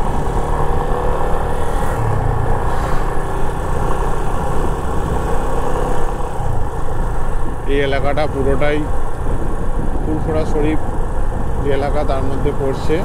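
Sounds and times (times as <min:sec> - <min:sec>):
motorcycle engine cruising: 0:00.0 - 0:13.0
road noise: 0:00.0 - 0:13.0
wind noise: 0:00.0 - 0:13.0.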